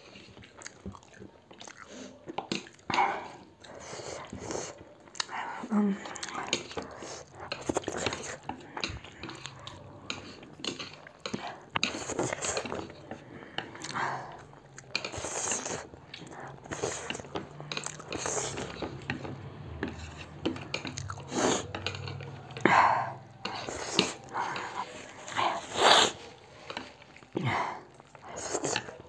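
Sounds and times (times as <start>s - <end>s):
chewing and slurping: 0.0s - 29.0s
chopsticks clicking on plates: 6.0s - 25.4s.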